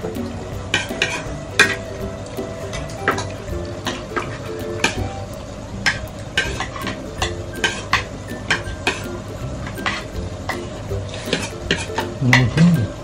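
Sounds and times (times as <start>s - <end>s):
cutlery clinking on plates: 0.7s - 1.8s, 2.7s - 5.1s, 5.9s - 12.8s.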